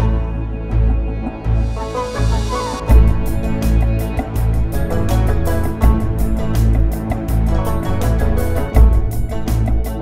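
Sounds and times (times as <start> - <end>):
music with heavy bass beat: 2.9 - 10.0.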